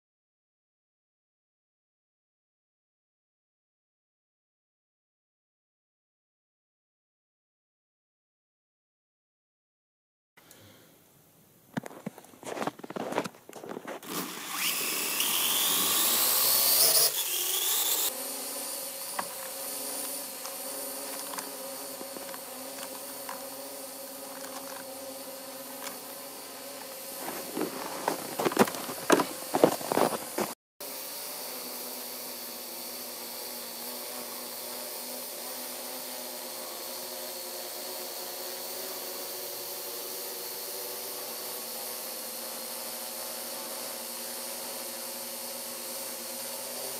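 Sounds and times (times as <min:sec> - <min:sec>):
quadcopter propellers whining: 0:12.5 - 0:46.9.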